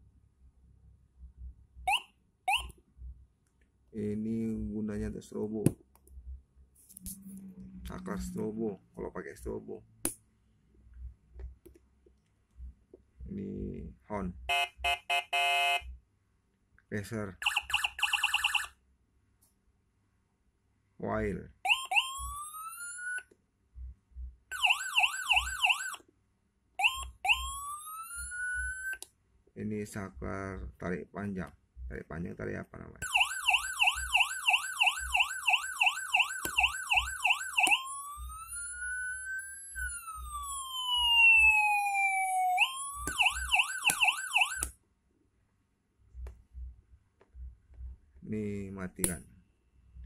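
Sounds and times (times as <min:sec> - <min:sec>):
electronic siren tones: 0:01.9 - 0:02.8, 0:07.0 - 0:08.6, 0:21.7 - 0:23.3, 0:24.5 - 0:26.0, 0:26.8 - 0:29.0, 0:33.0 - 0:44.7
siren warble: 0:07.0 - 0:08.6, 0:21.7 - 0:23.2, 0:24.5 - 0:26.0, 0:26.8 - 0:29.0, 0:33.0 - 0:44.7.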